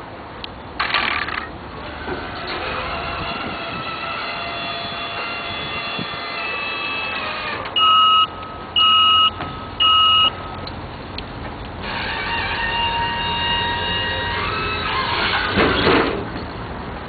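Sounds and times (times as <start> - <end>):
steady mechanical hum: 0.0 - 17.0
electronic warning beeps: 7.8 - 10.7.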